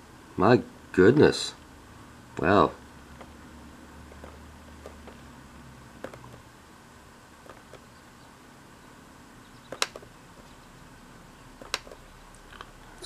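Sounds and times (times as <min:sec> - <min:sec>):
faint room hum: 0:00.0 - 0:13.0
short sharp clicks: 0:09.7 - 0:10.1.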